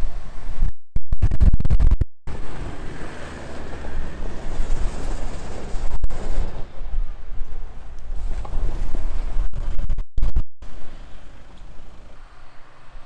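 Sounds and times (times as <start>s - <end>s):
wind noise on microphone: 0.0s - 12.1s
diesel engine rumble: 2.3s - 9.5s.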